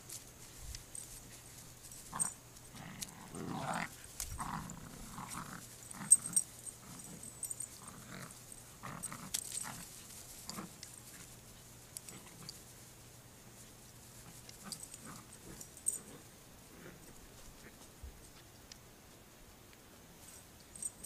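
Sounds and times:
dogs growling and grunting: 2.1s - 10.8s, 14.3s - 17.2s.

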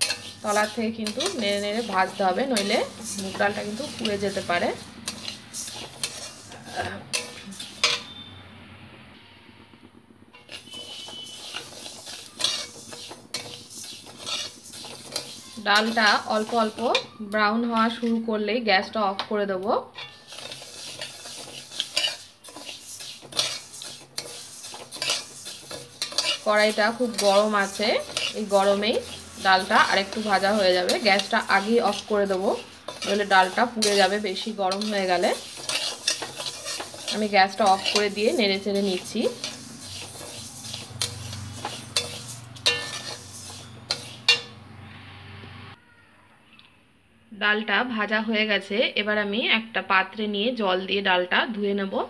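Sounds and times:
spatula scraping steel pan: 0.0s - 8.3s, 10.3s - 18.2s, 20.0s - 44.6s
lentils rattling over metal: 20.2s - 44.4s.

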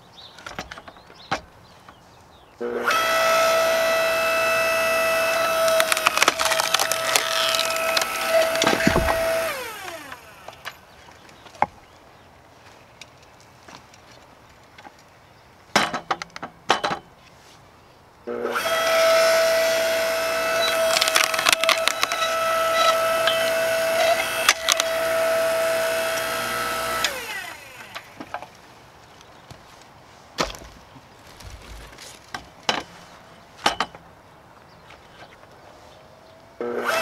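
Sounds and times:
log splitter motor whining: 2.6s - 10.8s, 18.3s - 28.4s, 36.6s - 37.0s
wood cracking and splintering: 3.0s - 11.8s, 18.7s - 28.6s, 30.4s - 32.9s
wood knocking: 5.6s - 9.5s.

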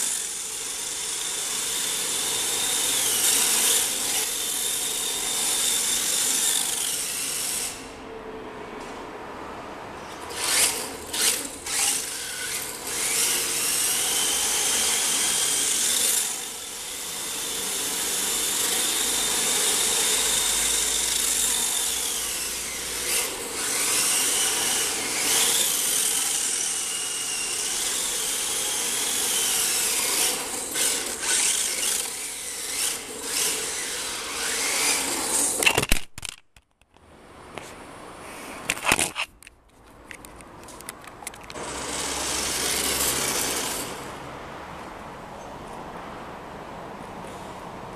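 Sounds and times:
toy car electric motor whining: 0.0s - 8.0s, 10.2s - 36.4s, 41.5s - 44.1s.

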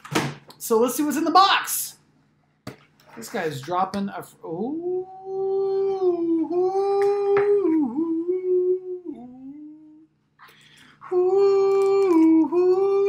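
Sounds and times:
man humming: 4.6s - 10.1s, 11.0s - 13.0s.

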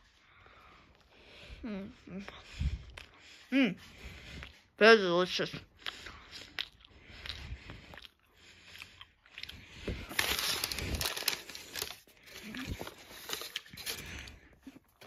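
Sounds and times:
paper bag crinkling: 9.8s - 14.4s.

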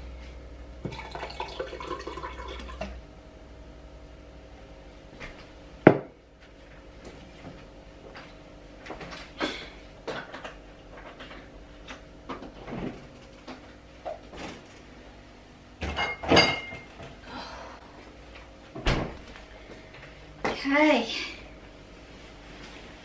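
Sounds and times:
fridge door opening and shutting: 12.3s - 13.2s, 14.1s - 14.9s, 18.8s - 19.2s.

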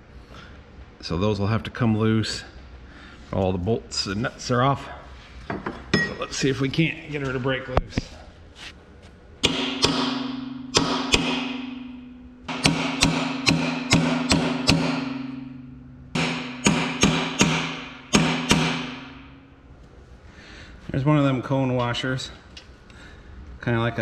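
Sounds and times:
hammer striking chisel on metal: 9.4s - 19.4s.

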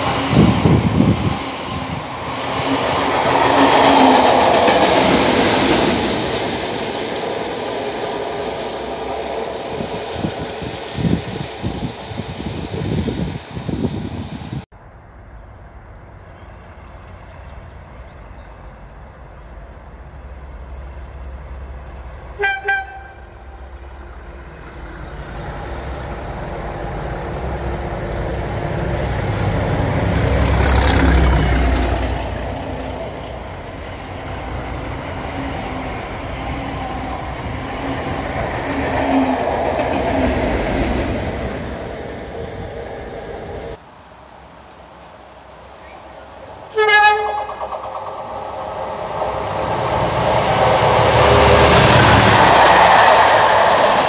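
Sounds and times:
diesel locomotive rumbling: 0.0s - 54.0s
passenger train passing: 0.0s - 54.0s
distant train horn toots: 22.4s - 23.6s, 46.7s - 47.9s.

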